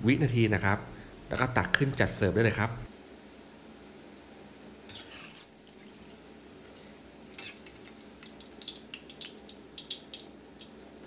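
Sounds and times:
omelette deep-frying in hot oil: 4.8s - 11.0s
sharp oil crackles: 7.3s - 11.0s.

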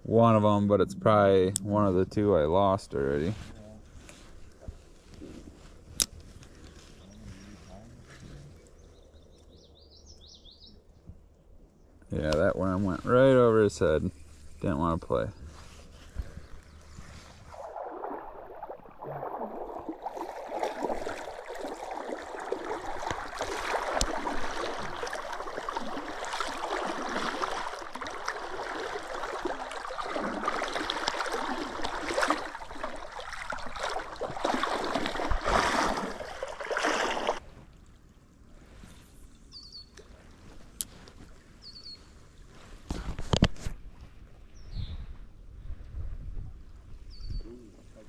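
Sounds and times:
bird chirp: 6.7s - 11.1s, 39.5s - 40.0s, 41.6s - 42.1s, 44.6s - 45.0s, 47.1s - 47.7s
creek water rushing: 17.5s - 37.4s.

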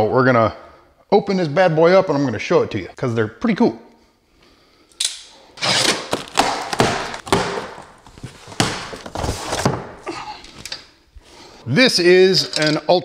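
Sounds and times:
cardboard scraping: 5.6s - 10.0s
cardboard rustling: 5.6s - 10.5s
dull thumps: 6.1s - 10.1s.

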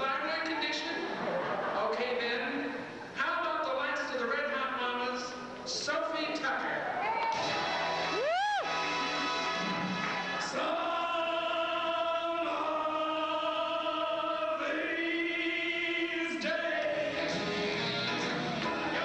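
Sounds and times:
slow vocal song with backing: 9.8s - 19.0s.

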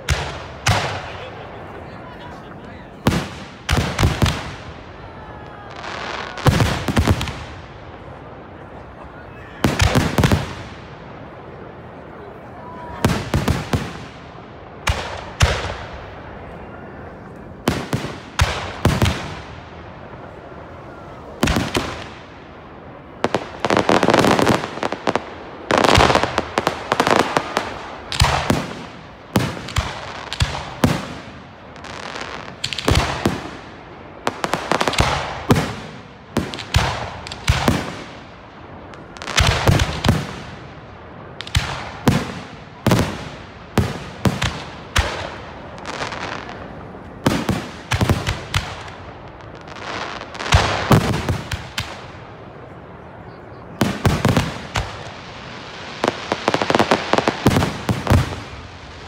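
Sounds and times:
fireworks bursting with bangs: 0.0s - 1.8s, 2.9s - 16.6s, 17.3s - 59.0s
fireworks crackle: 17.3s - 52.6s, 53.7s - 59.0s.

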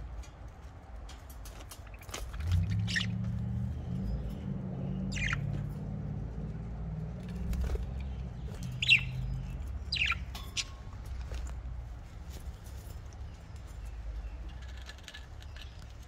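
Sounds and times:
low steady rumble: 0.0s - 16.0s
budgerigars chirping: 2.6s - 3.2s, 5.0s - 5.6s, 8.1s - 10.8s.

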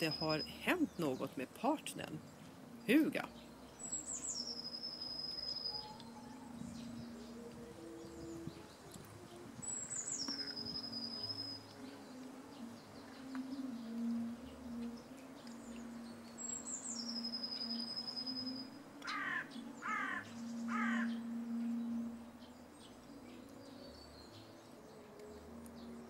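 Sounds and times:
crow cawing: 19.0s - 21.2s.

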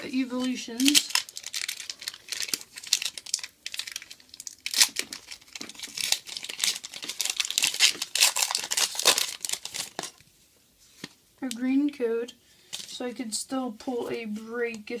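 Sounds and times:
foil wrapper crinkling and tearing: 0.4s - 10.2s.

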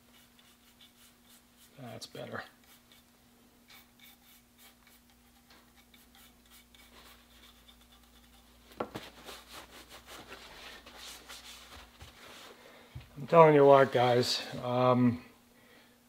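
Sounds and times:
toothbrush scrubbing wood: 0.0s - 3.1s, 3.7s - 11.9s
cloth rubbing over wood: 8.8s - 12.6s.

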